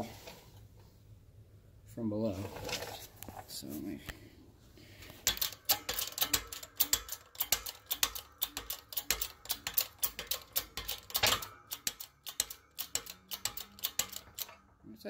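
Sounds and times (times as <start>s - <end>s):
hydraulic press metallic clicking: 5.1s - 14.7s.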